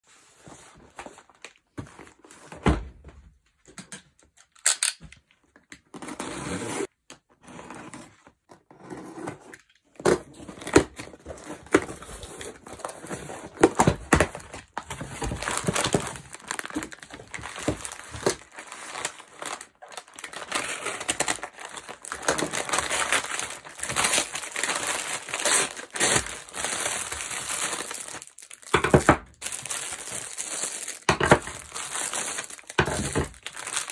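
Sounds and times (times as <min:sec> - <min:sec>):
paper crinkling and tearing: 0:14.5 - 0:28.8, 0:29.4 - 0:33.9
plastic bag rustling: 0:15.0 - 0:33.9.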